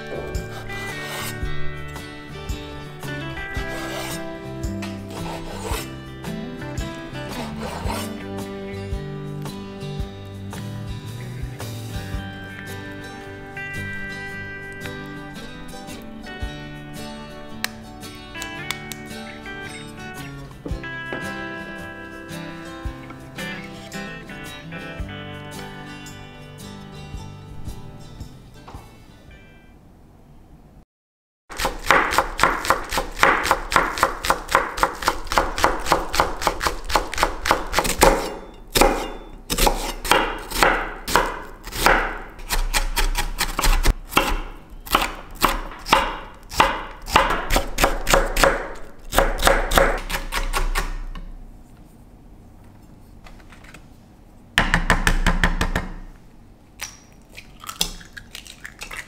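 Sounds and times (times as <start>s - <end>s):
knife chopping on cutting board: 0.0s - 1.4s, 4.9s - 5.9s, 7.3s - 8.2s, 31.5s - 51.1s.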